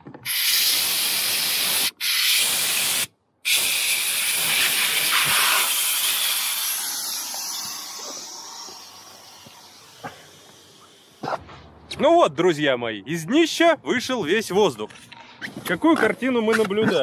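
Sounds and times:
air hissing from valve: 0.2s - 11.2s.

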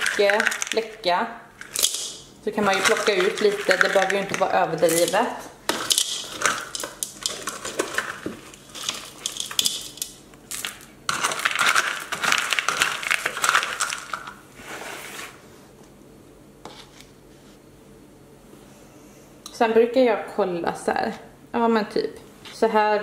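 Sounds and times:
plastic scoop digging: 0.0s - 0.9s, 1.6s - 15.4s
pebbles rattling in plastic bowl: 0.0s - 14.4s.

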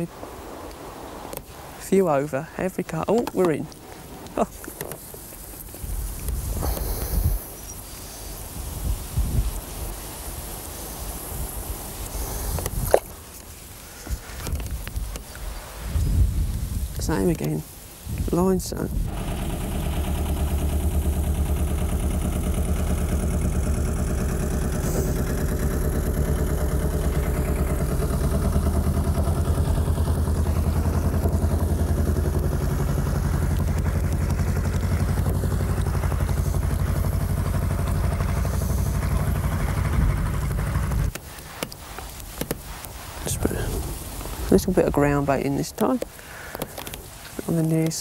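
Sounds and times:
boat engine chugging: 19.0s - 41.1s.

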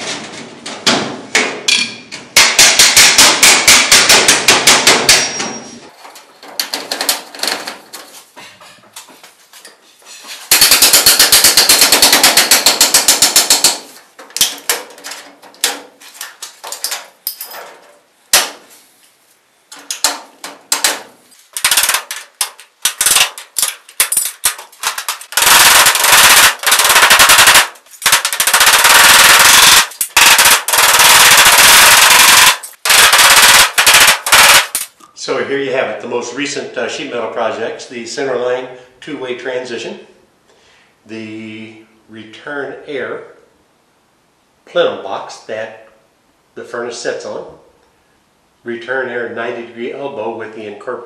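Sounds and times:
rapid metallic clicks and impacts: 0.0s - 8.1s, 10.5s - 18.6s, 19.7s - 35.0s.

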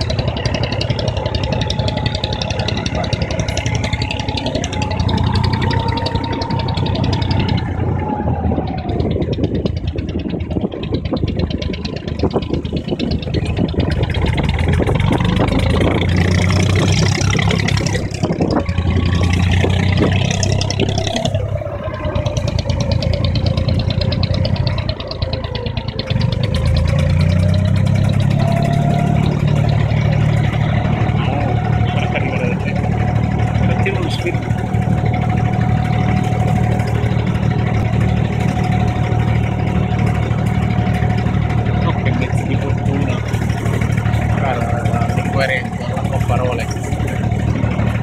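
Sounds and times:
boat engine running: 0.0s - 48.0s.

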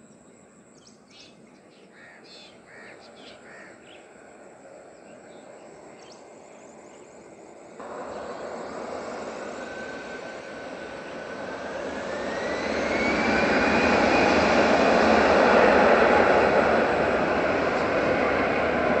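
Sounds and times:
jet engines roaring: 2.6s - 19.0s
engine whine rising in pitch: 4.3s - 19.0s.

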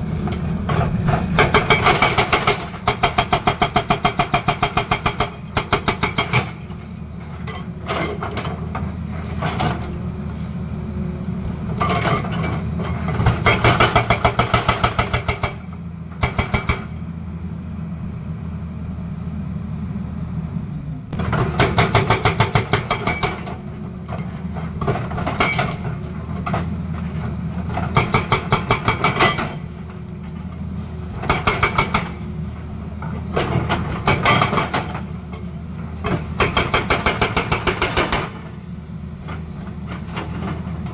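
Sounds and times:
diesel engine running: 0.0s - 14.9s, 15.5s - 40.9s
hydraulic rock breaker hammering: 0.2s - 6.9s, 11.8s - 17.0s, 21.2s - 23.7s, 24.6s - 30.4s, 31.1s - 32.3s, 33.2s - 38.6s.

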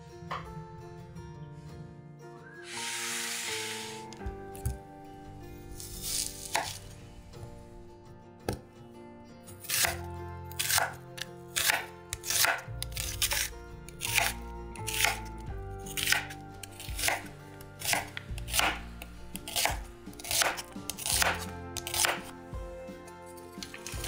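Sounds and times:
soft background music: 0.0s - 24.0s
knife slicing onion on board: 2.7s - 4.7s, 5.8s - 6.8s, 9.6s - 22.4s.

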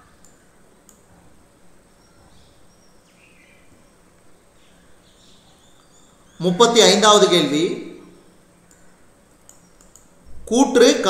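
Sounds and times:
faint high chirps: 0.0s - 6.6s, 8.0s - 10.4s
low room hiss: 0.0s - 11.0s
click: 0.2s - 1.0s, 8.6s - 8.8s, 9.4s - 10.1s.

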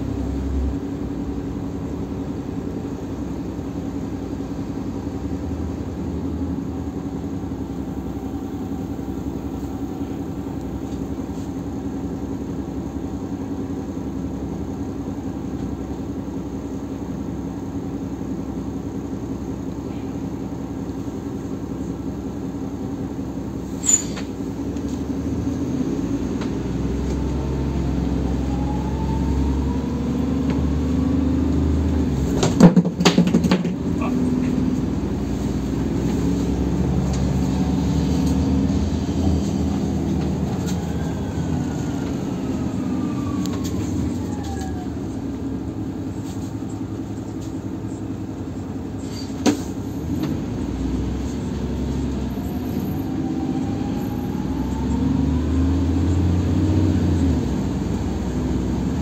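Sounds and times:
bus engine rumble with whine: 0.0s - 59.0s
loud rattling knocks: 32.4s - 33.8s.

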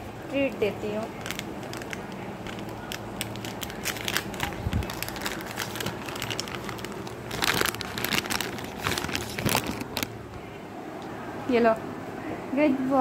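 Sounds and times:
plastic pouch crinkling: 0.9s - 10.3s.

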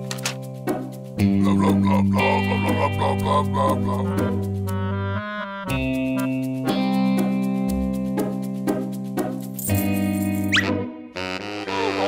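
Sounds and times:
cartoon music: 1.2s - 7.3s.

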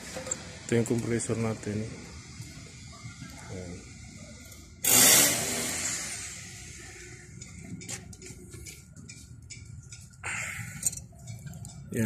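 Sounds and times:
loud hiss: 4.8s - 6.8s.

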